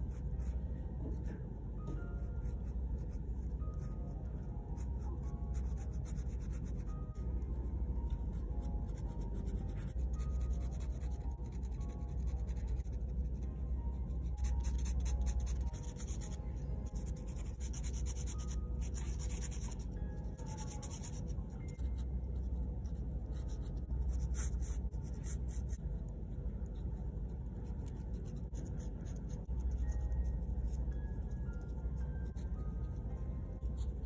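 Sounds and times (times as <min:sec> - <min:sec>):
soft background music: 0:00.0 - 0:34.0
pen nib scratching on paper: 0:02.4 - 0:07.2, 0:08.0 - 0:13.5, 0:14.2 - 0:34.0.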